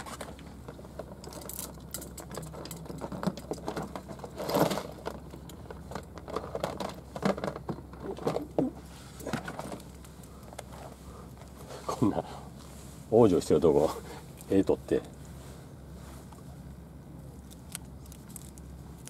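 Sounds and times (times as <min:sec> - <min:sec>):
small clicks and rattles: 0:00.2 - 0:08.6.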